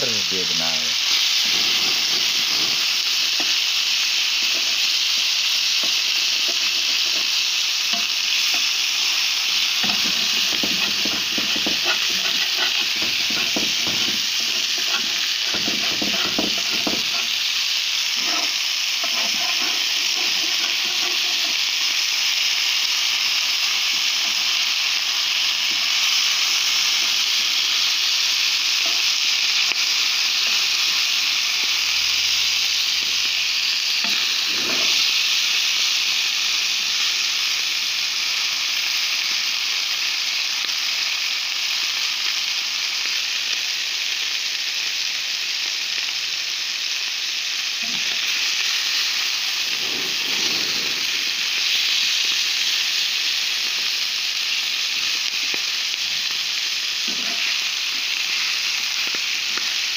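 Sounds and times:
meat sizzling in a pan: 0.0s - 59.9s
metal tongs scraping a pan: 1.1s - 3.6s, 4.3s - 5.2s, 5.8s - 8.8s, 9.5s - 22.0s, 28.8s - 31.2s, 34.0s - 35.3s, 47.8s - 48.4s, 57.0s - 59.7s.

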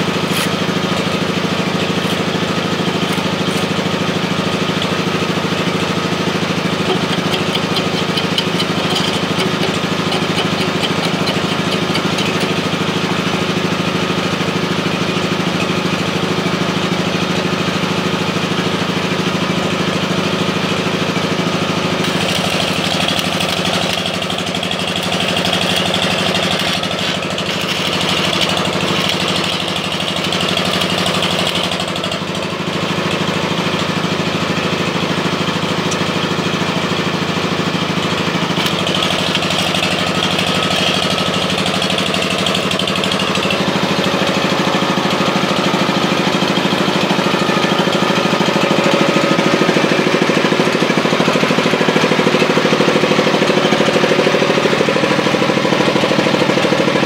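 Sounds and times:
small engine running: 0.0s - 57.0s
welding arc crackling on steel: 1.6s - 13.1s, 22.0s - 32.3s.

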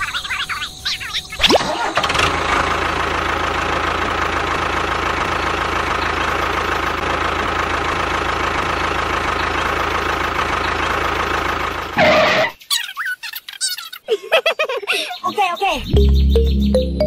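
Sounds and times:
tractor engine idling: 0.6s - 12.5s.

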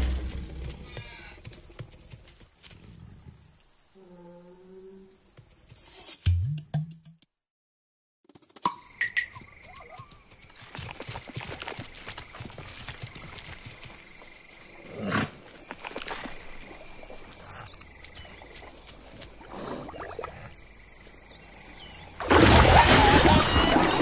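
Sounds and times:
animal cries: 0.8s - 1.4s
insect-like chirp: 0.8s - 6.2s, 8.3s - 24.0s
loud water splash: 22.2s - 24.0s.

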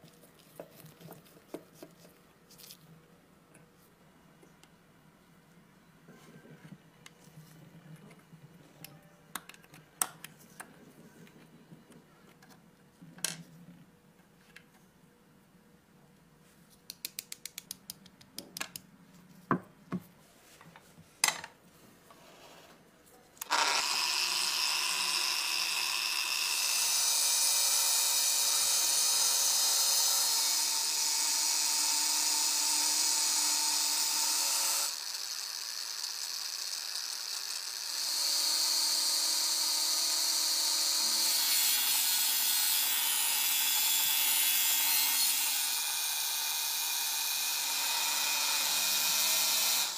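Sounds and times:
angle grinder whining: 23.4s - 49.9s.

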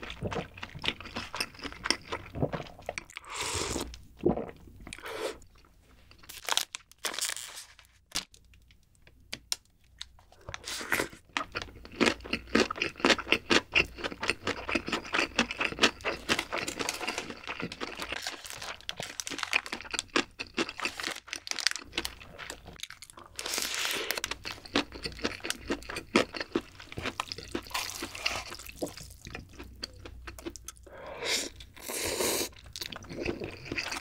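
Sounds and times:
plastic wrapper crinkling: 6.2s - 8.6s.

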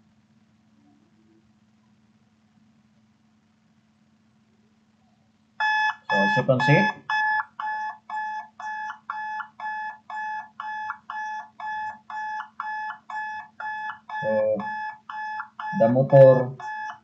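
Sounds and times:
alarm buzzer beeping: 5.6s - 17.0s.

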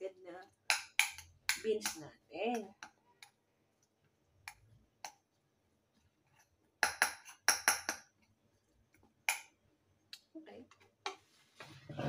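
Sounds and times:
metal spoon clinking porcelain bowl: 6.8s - 8.1s.

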